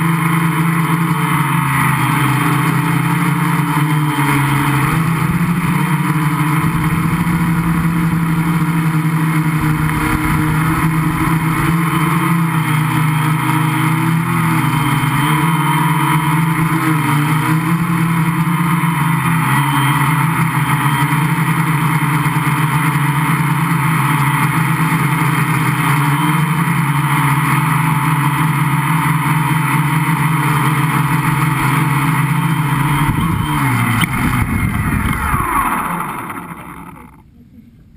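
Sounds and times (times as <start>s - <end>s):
drone motors and propellers droning: 0.0s - 37.9s
motors spinning down whine: 0.0s - 37.9s.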